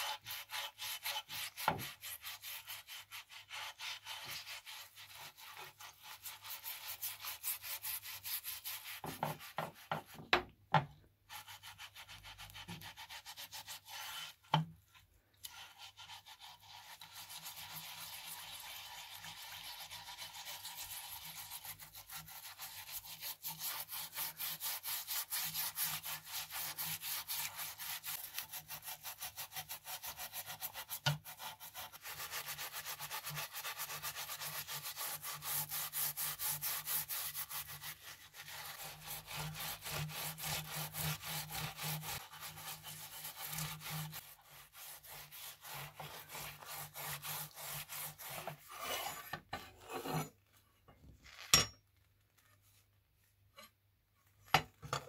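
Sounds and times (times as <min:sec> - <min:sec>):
scouring pad scrubbing metal: 0:00.0 - 0:10.2, 0:15.4 - 0:48.9.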